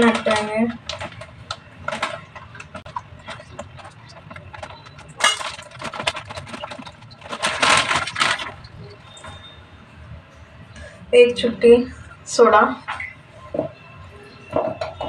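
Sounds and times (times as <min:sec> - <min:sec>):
plastic packet crinkling: 0:00.0 - 0:09.3.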